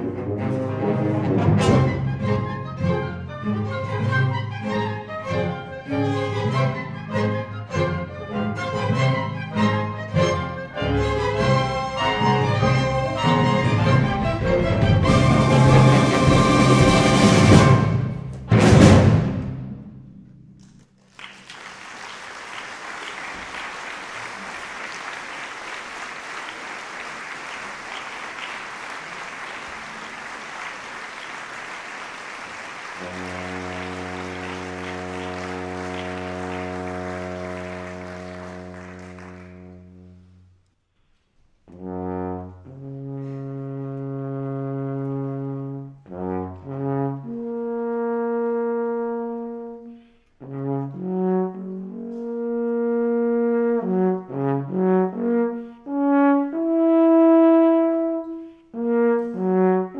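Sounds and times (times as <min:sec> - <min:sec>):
orchestral chord with timpani: 0:00.0 - 0:02.6, 0:10.8 - 0:20.0, 0:33.0 - 0:40.2
alphorn playing: 0:00.2 - 0:18.2, 0:24.2 - 0:40.3.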